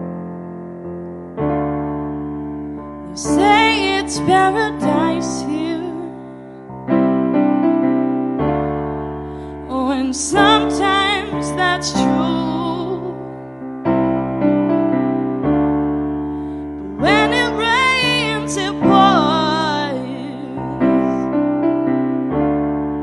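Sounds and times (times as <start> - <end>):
piano chords: 0.0 - 23.0
woman singing with vibrato: 3.1 - 6.2, 9.7 - 13.2, 16.8 - 21.2.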